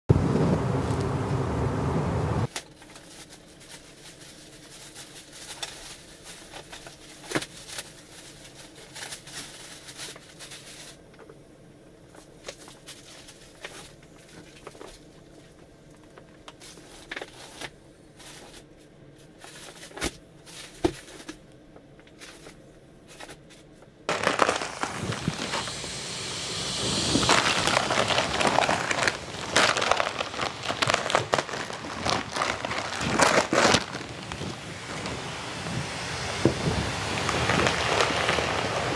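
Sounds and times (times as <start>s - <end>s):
plastic wrapping crinkling: 2.4s - 11.0s, 12.1s - 18.7s, 24.1s - 35.1s, 37.1s - 38.9s.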